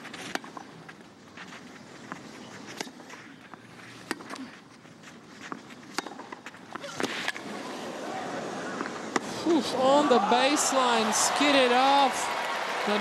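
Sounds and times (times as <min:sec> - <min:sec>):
shoes scuffing on clay: 0:00.0 - 0:07.2
tennis ball hitting rackets: 0:02.1 - 0:04.6, 0:05.4 - 0:07.5.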